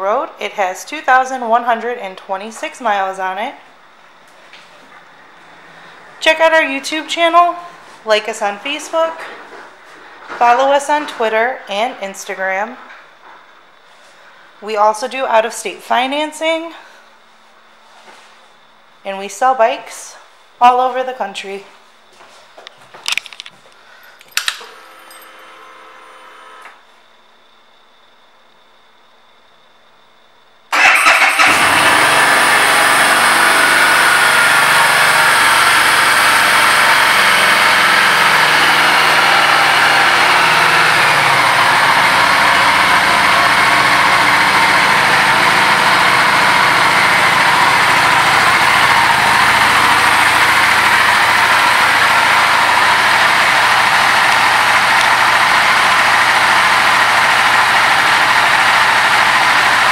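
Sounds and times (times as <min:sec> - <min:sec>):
motorcycle engine starting and idling: 0:24.2 - 0:26.8, 0:30.7 - 0:59.9.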